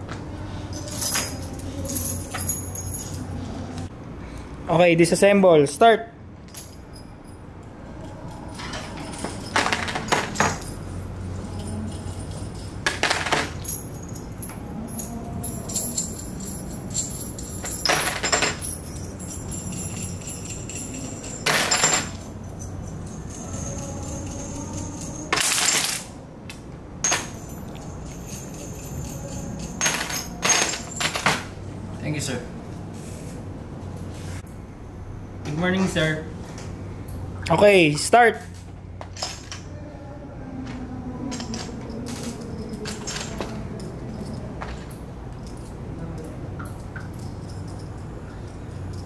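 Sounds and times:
low steady hum: 0.0 - 49.0
metal bolts clattering into tub: 8.4 - 15.0, 15.7 - 23.4, 24.0 - 26.1, 27.0 - 31.5, 39.1 - 39.7, 41.3 - 43.6.

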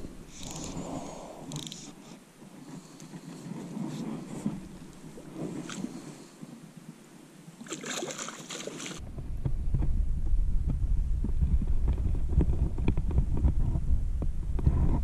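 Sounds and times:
low buffeting rumble on microphone: 0.0 - 6.3, 9.0 - 15.0
water splashing: 4.4 - 6.3, 7.6 - 9.0.

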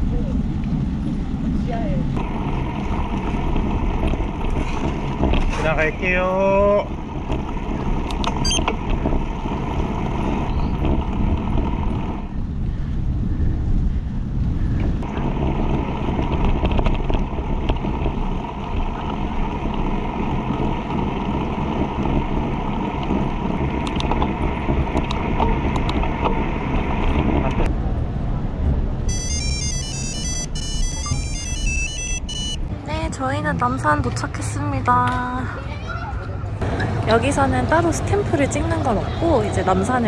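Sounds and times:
tyre rumble on road: 0.0 - 30.5
wind on microphone: 6.8 - 29.1.

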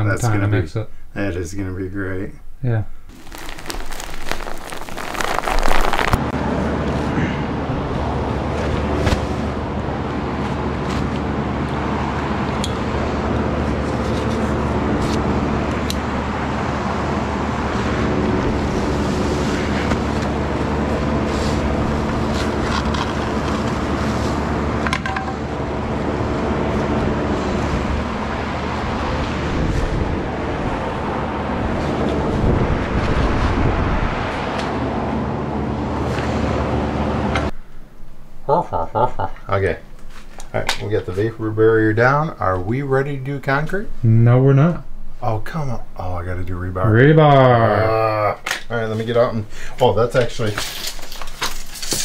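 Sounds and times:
steady machine hum: 5.4 - 32.5.

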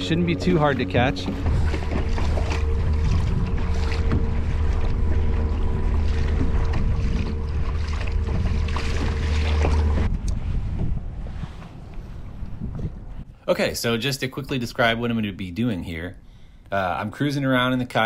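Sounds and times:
electric motor humming: 0.0 - 10.1
water sloshing against hull: 0.0 - 13.3
wind on microphone: 0.0 - 13.3.

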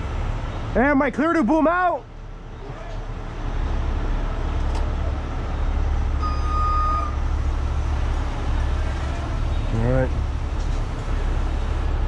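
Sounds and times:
diesel engine and hydraulics rumbling: 0.0 - 12.0
high beep: 6.2 - 7.2.

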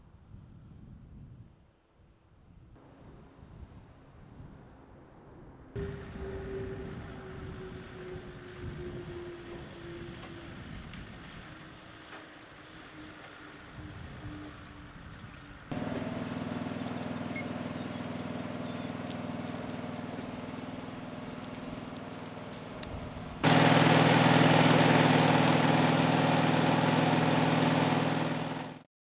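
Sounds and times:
fire pump engine running: 5.8 - 28.9
hose jet hissing: 15.7 - 28.8.

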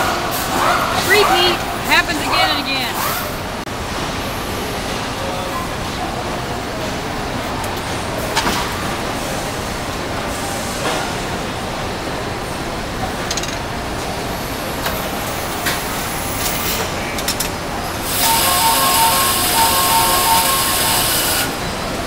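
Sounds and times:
sharp metallic clicks and clanks: 13.2 - 13.6
assembly-line machinery din: 18.0 - 21.7.

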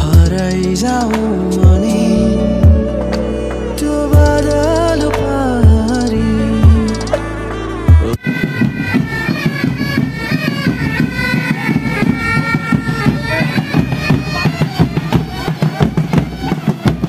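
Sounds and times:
drums beating: 0.0 - 17.0
bagpipes playing: 7.3 - 17.0.

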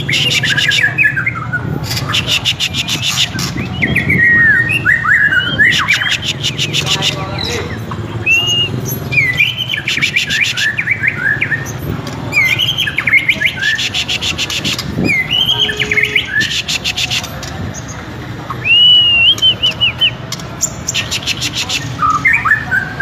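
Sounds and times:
bird singing fluty whistles: 0.0 - 7.0, 8.2 - 11.7, 18.6 - 20.2.

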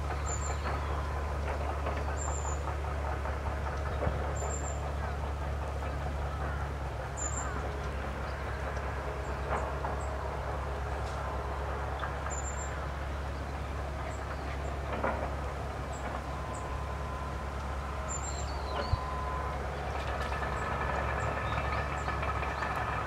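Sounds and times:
distant traffic rumble: 0.0 - 23.0
engine drone: 0.0 - 23.0.

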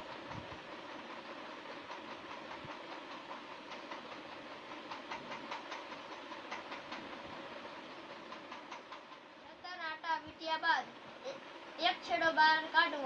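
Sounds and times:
wire ticking and rustling: 0.0 - 9.5.

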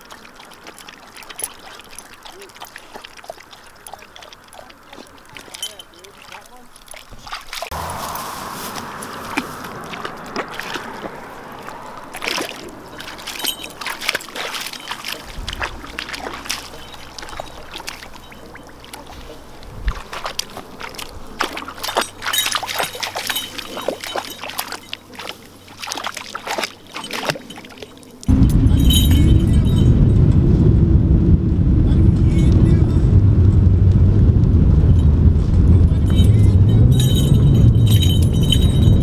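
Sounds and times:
dog sloshing in water: 0.0 - 29.8
road noise inside car: 7.7 - 14.0, 28.3 - 39.0.

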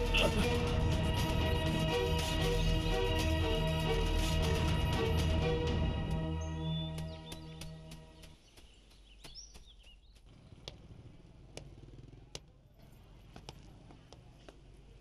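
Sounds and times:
bird chirps: 6.3 - 10.7
sharp taps: 6.9 - 10.9, 11.5 - 12.6.

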